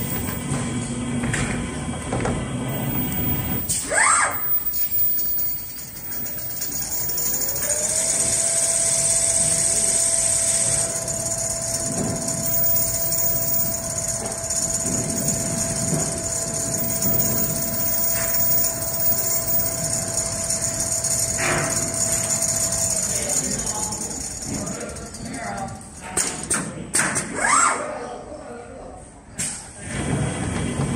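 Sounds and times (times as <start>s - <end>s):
sewing machine motor whine: 0.0s - 0.6s, 2.7s - 26.6s.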